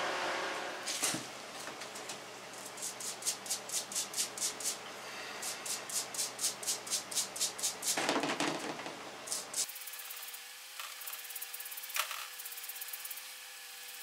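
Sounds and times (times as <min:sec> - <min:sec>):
stiff brush scrubbing: 0:02.6 - 0:04.8, 0:05.4 - 0:08.0.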